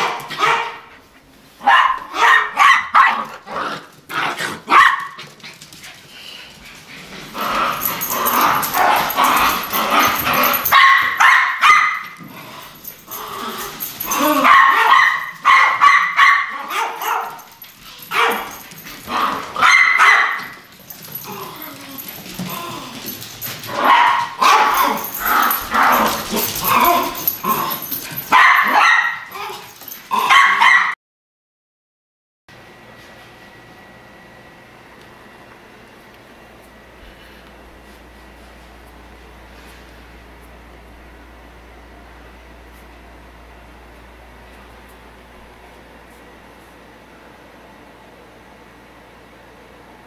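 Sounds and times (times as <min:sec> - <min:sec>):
small dogs barking: 0:00.0 - 0:01.0, 0:01.6 - 0:03.4, 0:04.6 - 0:05.2, 0:08.0 - 0:12.2, 0:14.0 - 0:20.6, 0:23.7 - 0:31.0.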